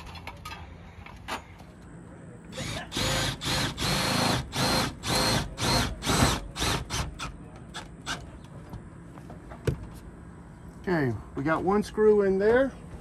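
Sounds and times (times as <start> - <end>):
power drill whining: 2.5 - 7.0.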